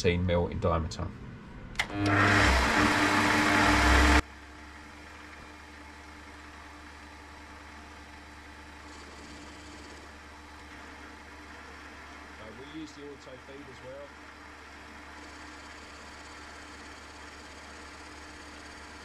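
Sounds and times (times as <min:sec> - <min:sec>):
loud harsh noise: 0:01.8 - 0:04.2
metal lathe running: 0:01.8 - 0:04.2, 0:14.2 - 0:19.0.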